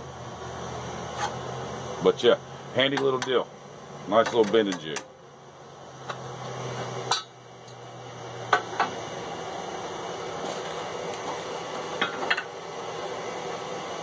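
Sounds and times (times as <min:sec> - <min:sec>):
steady background hiss: 0:00.0 - 0:14.0.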